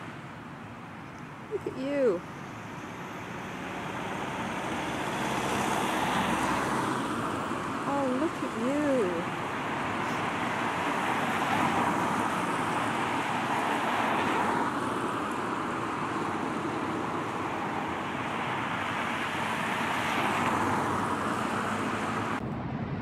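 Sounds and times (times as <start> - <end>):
passing cars: 0.0 - 23.0.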